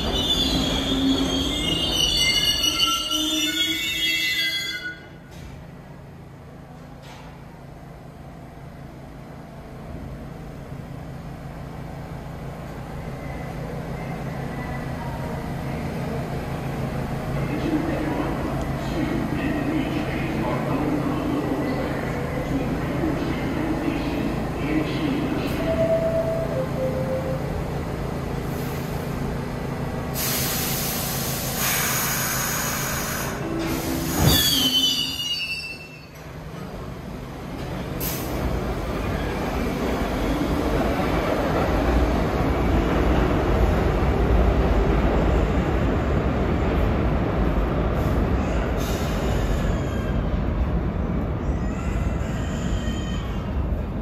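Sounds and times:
wheel squeal: 0.0s - 5.2s, 34.1s - 36.2s
low hum of standing train: 0.0s - 54.0s
subway train rumble approaching: 0.0s - 54.0s.

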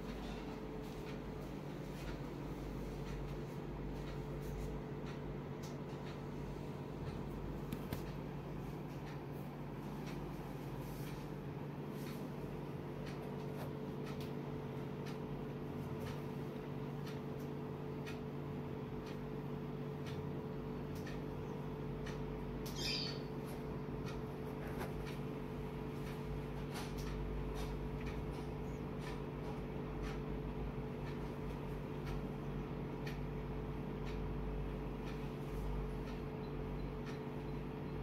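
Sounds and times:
steady low hum: 0.0s - 38.0s
high-pitched chirp: 22.6s - 23.4s.

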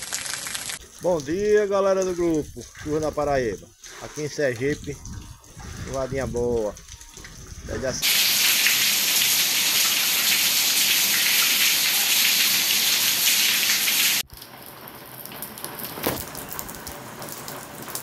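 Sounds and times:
soft rain with drips: 0.0s - 18.0s
heavy rain hissing: 8.0s - 14.2s.

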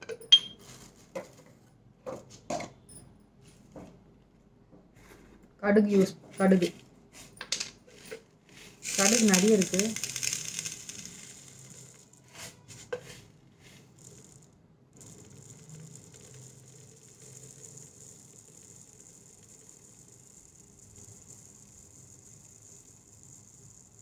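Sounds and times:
seeds pattering on glass: 8.7s - 12.1s, 15.0s - 24.0s.

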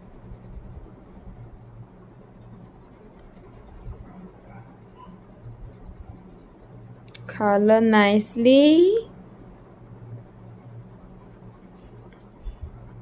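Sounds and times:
pencil scratching on paper: 0.0s - 7.0s, 10.2s - 12.7s
low hum: 0.0s - 13.0s.

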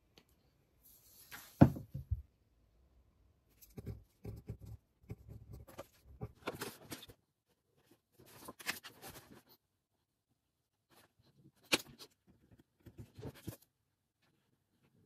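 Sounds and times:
pen scratching on paper: 3.6s - 6.4s.

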